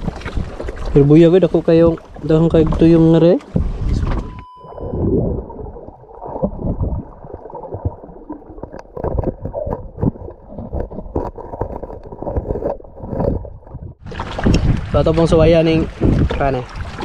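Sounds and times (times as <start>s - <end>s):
underwater rumble of moving water: 0.0s - 17.0s.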